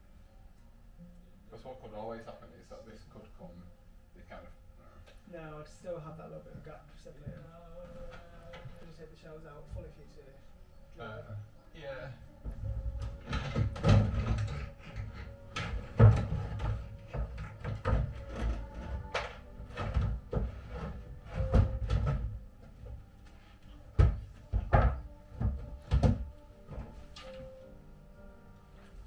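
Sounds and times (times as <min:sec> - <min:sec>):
wooden boards knocking on wood: 0:13.0 - 0:22.8, 0:23.9 - 0:27.0.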